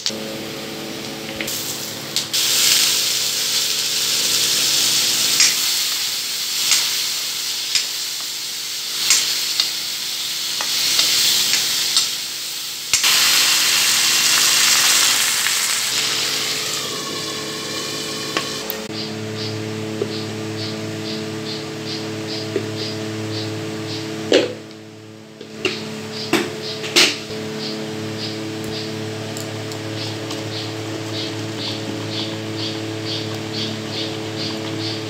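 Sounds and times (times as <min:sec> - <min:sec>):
potatoes sizzling in hot oil: 0:01.5 - 0:18.9.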